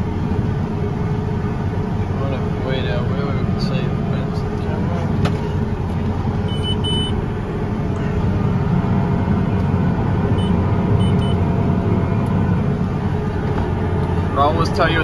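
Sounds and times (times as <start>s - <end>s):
tractor engine droning: 0.0s - 15.0s
short high beeps: 6.5s - 7.2s, 10.4s - 11.4s.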